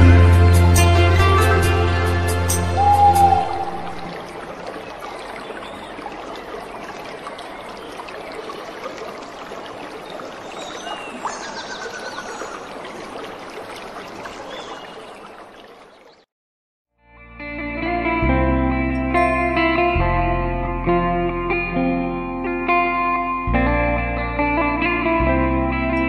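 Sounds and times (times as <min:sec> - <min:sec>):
background music: 0:00.0 - 0:04.2, 0:17.1 - 0:26.0.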